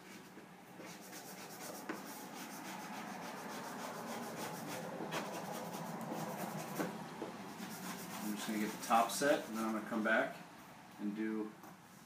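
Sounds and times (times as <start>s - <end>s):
squeegee scraping wet vinyl: 0.9s - 6.9s, 7.5s - 10.0s.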